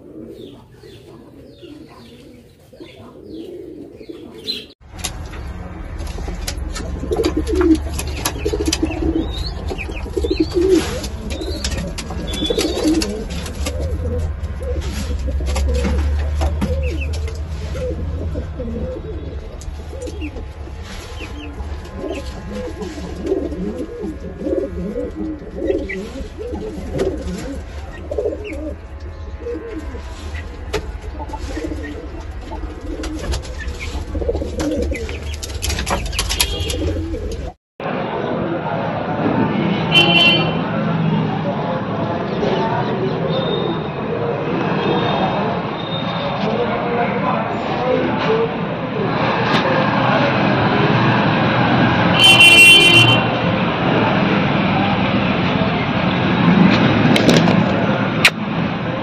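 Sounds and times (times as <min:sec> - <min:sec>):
pigeons cooing: 0:00.0 - 0:04.8, 0:06.1 - 0:37.5.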